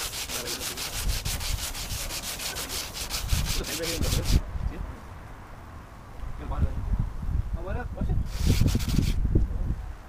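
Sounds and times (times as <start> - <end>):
sandpaper scratching on painted metal: 0.0 - 4.4, 8.3 - 9.2.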